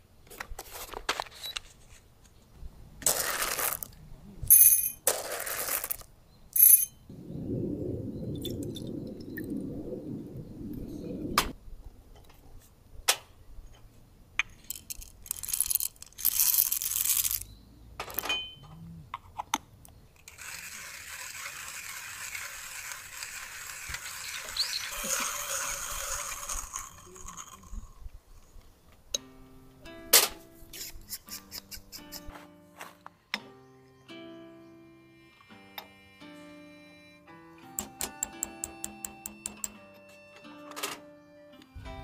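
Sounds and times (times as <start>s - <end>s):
hand grinder crunching coffee beans: 3.0s - 4.0s, 5.1s - 6.1s, 14.7s - 17.5s, 20.2s - 28.0s.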